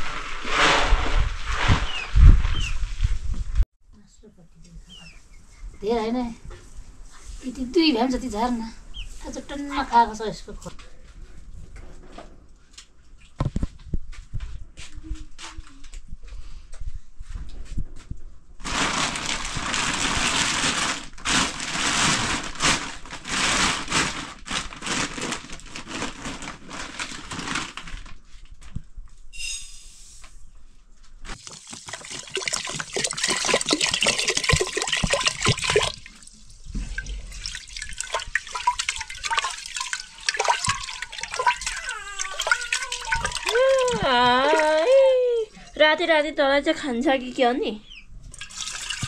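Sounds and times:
water splashing and pouring: 31.3 - 44.8, 48.3 - 49.0.

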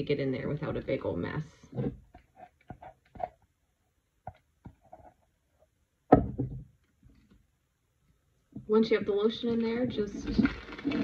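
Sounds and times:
spatula scraping plastic container: 0.5 - 3.5, 9.1 - 11.0.

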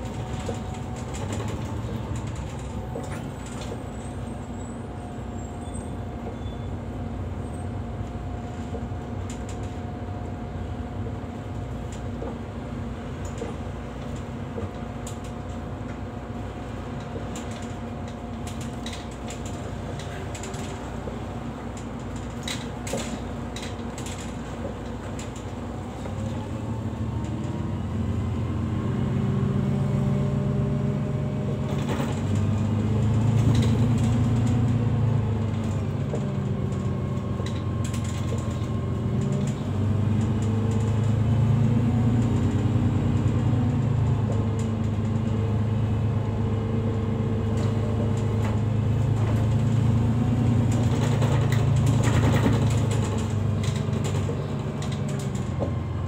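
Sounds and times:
bus engine hum from inside: 0.0 - 56.0.

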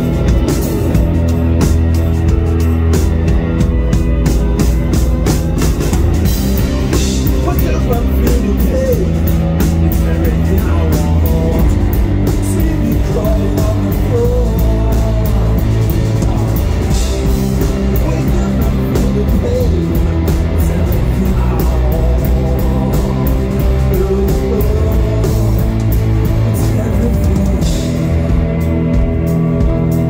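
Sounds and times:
drum kit with cymbal hits: 0.0 - 30.0
electric guitars: 0.0 - 30.0
person singing: 6.9 - 28.5.

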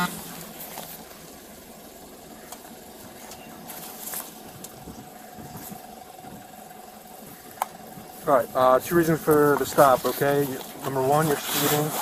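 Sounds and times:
car engine idling: 0.0 - 12.0.

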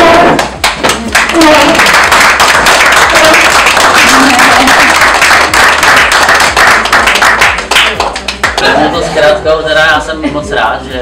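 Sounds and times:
crowd applauding: 0.4 - 8.8.

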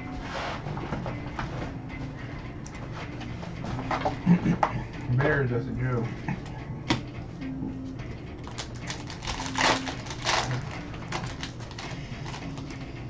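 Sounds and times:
cardboard and wrapper crinkling: 8.4 - 12.7.

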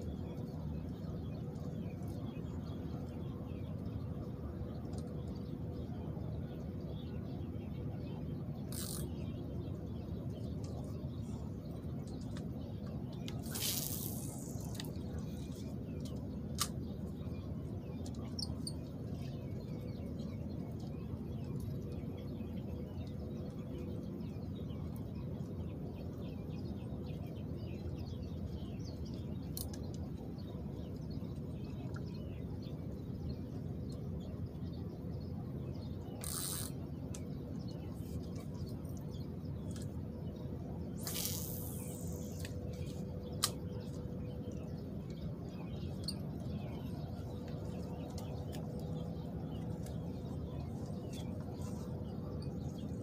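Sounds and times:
click: 43.4 - 43.6.

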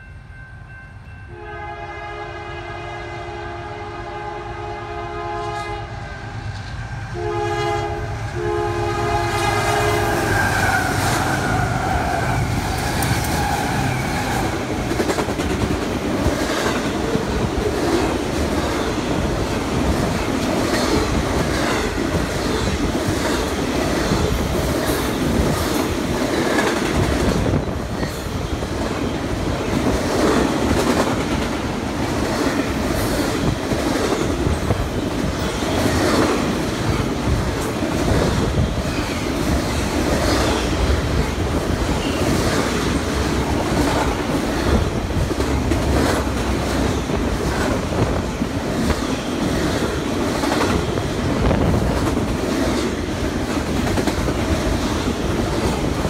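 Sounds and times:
freight train rumbling by: 0.0 - 56.0
locomotive air horn blasts: 1.3 - 6.1, 7.2 - 11.1.

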